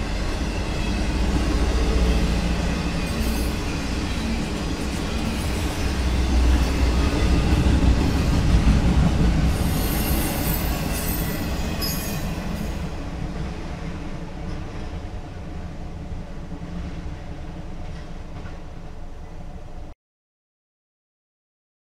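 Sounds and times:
freight train wheels rumbling: 0:00.0 - 0:19.9
high wheel squeals: 0:09.6 - 0:12.8.

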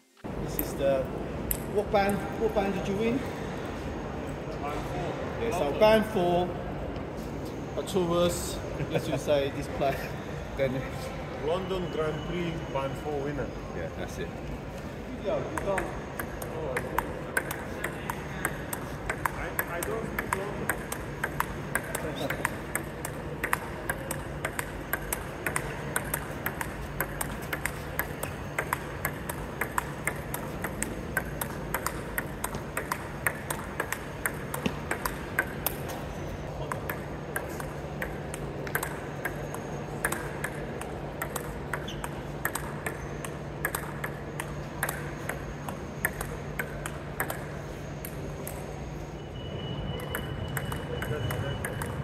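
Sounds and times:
ping pong ball hits: 0:15.4 - 0:48.7, 0:50.0 - 0:52.0
ball bouncing on table: 0:15.5 - 0:36.1, 0:36.7 - 0:48.6, 0:50.0 - 0:52.0.

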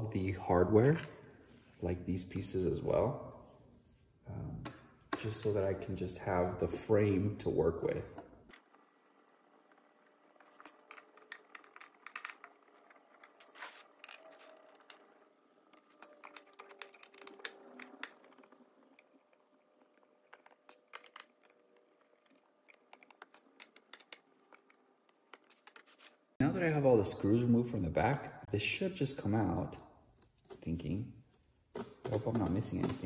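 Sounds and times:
screwdriver clicking and scraping: 0:10.4 - 0:15.0, 0:15.8 - 0:19.3.

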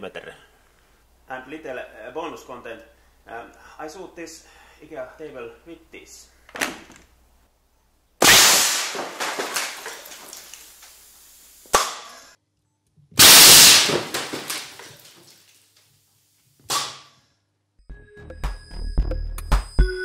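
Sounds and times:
air cannon blast: 0:08.2 - 0:09.2, 0:13.2 - 0:14.3
debris rattling: 0:08.2 - 0:10.8, 0:13.2 - 0:15.4
sharp crack: 0:08.2 - 0:11.0, 0:11.7 - 0:12.3, 0:13.2 - 0:15.4, 0:16.6 - 0:17.2.

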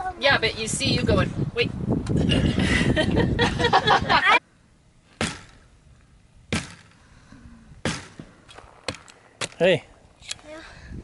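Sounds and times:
hatchet chopping tree trunk: 0:05.2 - 0:05.6, 0:06.5 - 0:06.9, 0:07.8 - 0:09.6.

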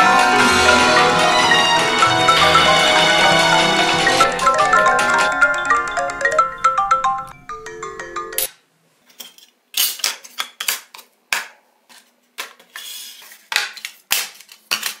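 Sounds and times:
marimba ringtone melody: 0:00.0 - 0:08.5.

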